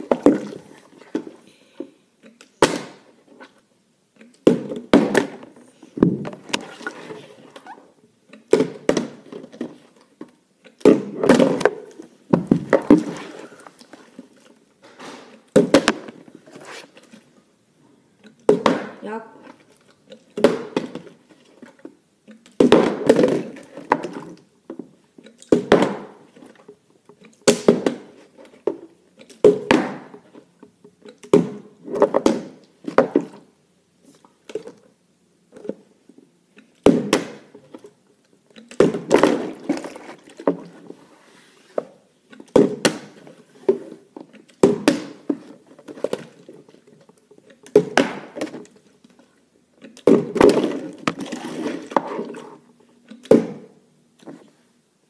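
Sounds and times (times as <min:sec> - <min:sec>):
plastic bottles thudding on floor: 0:04.4 - 0:07.1, 0:08.5 - 0:13.7, 0:14.8 - 0:16.2, 0:18.4 - 0:19.0, 0:20.3 - 0:21.2, 0:22.6 - 0:24.9, 0:25.5 - 0:26.6, 0:27.4 - 0:30.3, 0:31.3 - 0:33.5, 0:36.8 - 0:37.8, 0:38.7 - 0:40.8, 0:41.8 - 0:43.8, 0:44.6 - 0:46.6, 0:47.6 - 0:48.8, 0:50.0 - 0:52.4, 0:53.2 - 0:53.8.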